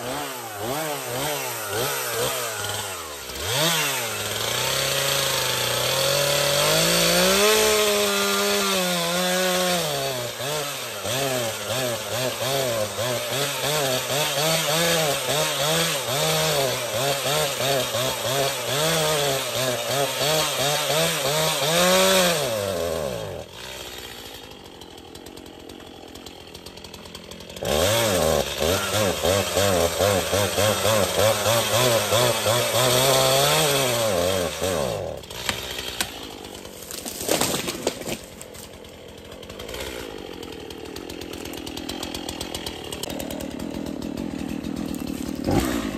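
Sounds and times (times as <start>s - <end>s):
chainsaw cutting wood: 0.0s - 45.9s.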